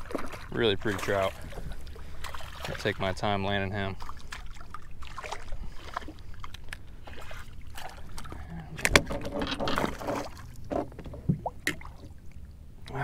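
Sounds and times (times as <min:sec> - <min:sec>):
water splashing: 0:00.0 - 0:13.0
knocks against a boat: 0:08.8 - 0:11.8.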